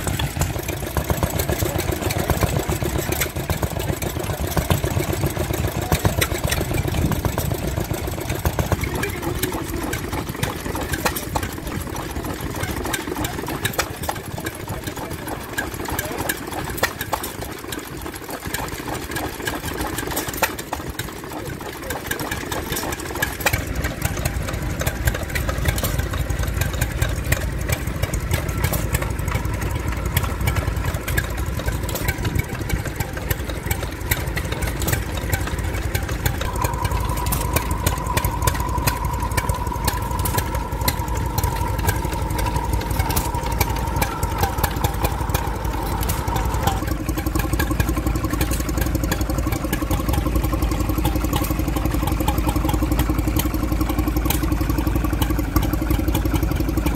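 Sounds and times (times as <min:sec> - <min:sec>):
stationary engines knocking: 0:00.0 - 0:56.9
steady whine: 0:05.8 - 0:15.4, 0:27.6 - 0:50.7.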